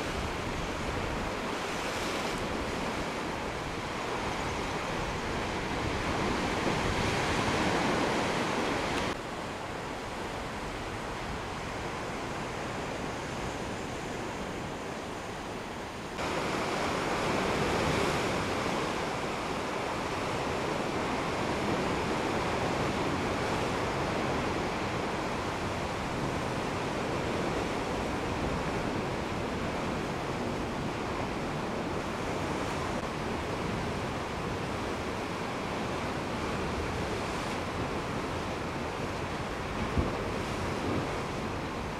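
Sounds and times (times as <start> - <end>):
ocean surf against rocks: 0.0 - 41.9.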